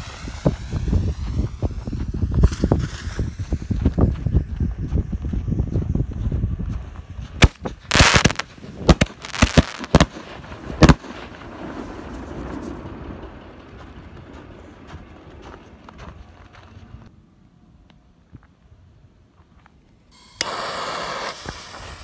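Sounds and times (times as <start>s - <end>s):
rushing burst: 0.0s - 3.8s, 7.4s - 13.5s
firework bangs: 0.0s - 3.9s, 7.4s - 15.9s
low rumbling: 0.0s - 17.5s.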